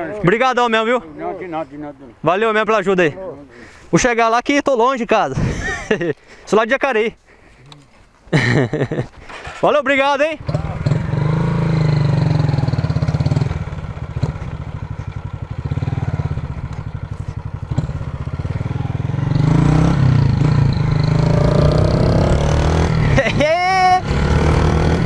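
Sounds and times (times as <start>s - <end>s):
motorcycle engine running: 10.4s - 25.0s.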